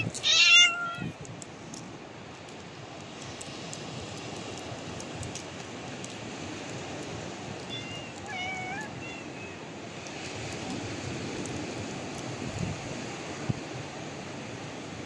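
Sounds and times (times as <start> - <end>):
cat meowing: 0.0 - 1.2, 7.7 - 9.6.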